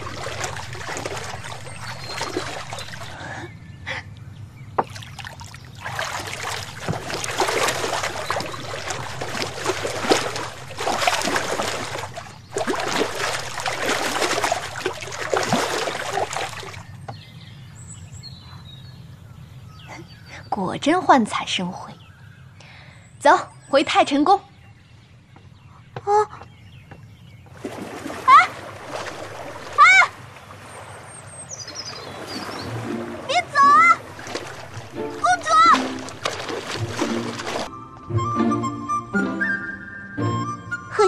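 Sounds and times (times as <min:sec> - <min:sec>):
water splashing from swimming: 0:00.0 - 0:03.5, 0:04.8 - 0:17.0, 0:27.5 - 0:37.7.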